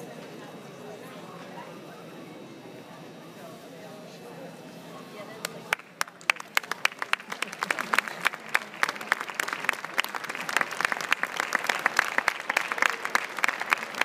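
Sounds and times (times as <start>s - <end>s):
audience applauding: 5.7s - 14.0s.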